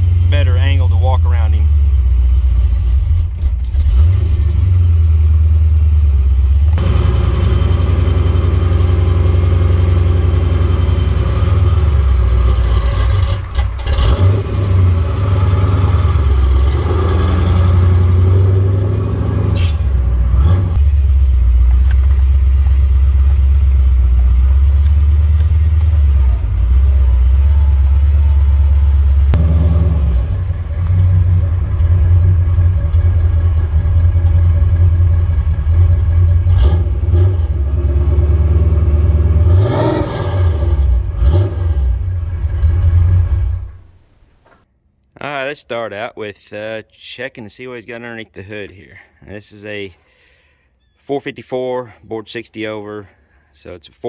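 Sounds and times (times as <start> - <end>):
low engine exhaust rumble: 0.0 - 39.6.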